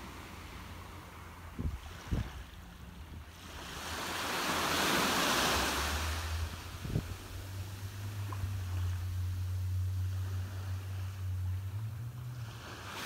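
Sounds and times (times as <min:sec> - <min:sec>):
wave washing up beach: 0:00.0 - 0:13.0
wind rumble on microphone: 0:00.0 - 0:13.0.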